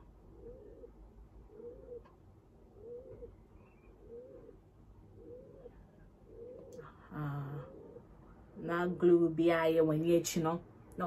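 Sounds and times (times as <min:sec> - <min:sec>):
dove cooing: 0:00.2 - 0:04.6, 0:05.2 - 0:08.2.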